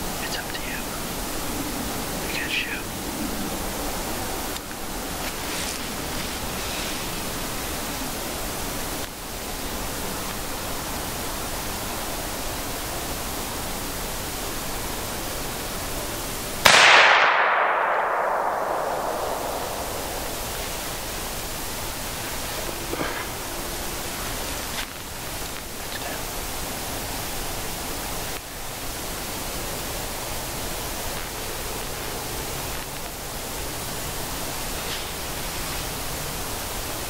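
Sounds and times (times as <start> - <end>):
steady background hiss: 0.0 - 37.0
shotgun shot echoing: 16.6 - 20.9.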